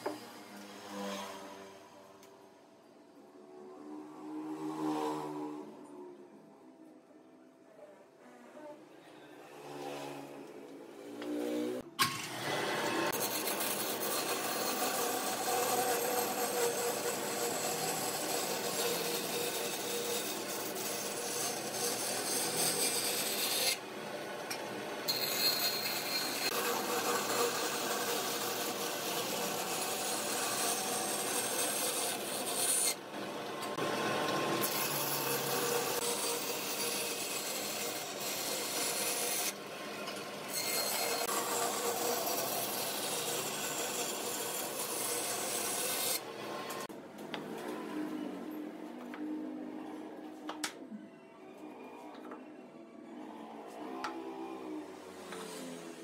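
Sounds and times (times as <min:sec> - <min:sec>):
power tool grinding wood: 0:11.2 - 0:23.8, 0:24.8 - 0:46.9.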